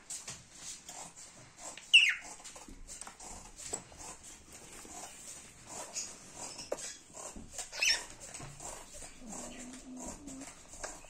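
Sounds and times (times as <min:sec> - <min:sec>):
budgerigars chirping: 0:01.9 - 0:02.3, 0:07.7 - 0:08.1.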